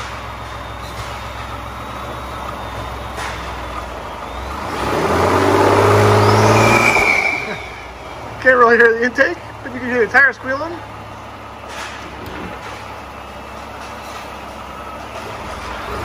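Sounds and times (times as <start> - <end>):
truck engine idling and revving: 0.0 - 16.0
thin high squeal: 6.2 - 7.9.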